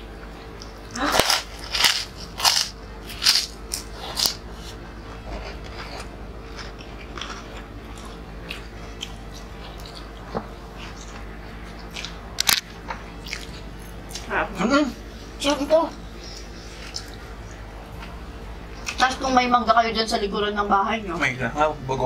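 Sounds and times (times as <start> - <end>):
chips crunching: 0.6 - 14.3.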